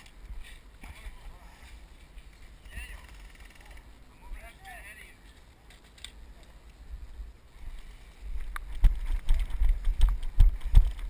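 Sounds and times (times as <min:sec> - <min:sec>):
gear clicking and rattling: 0:02.2 - 0:03.9.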